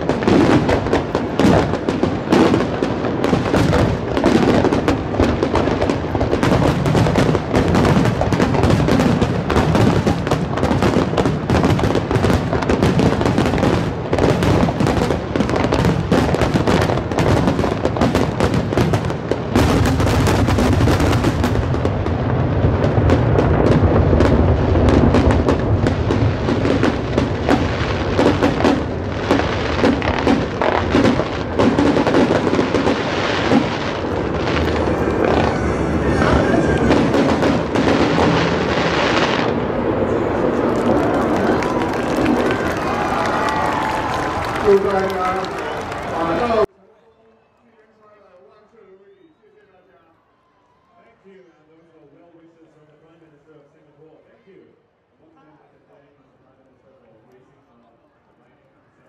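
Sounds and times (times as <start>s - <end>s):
fireworks bursting and crackling: 0.0s - 46.7s.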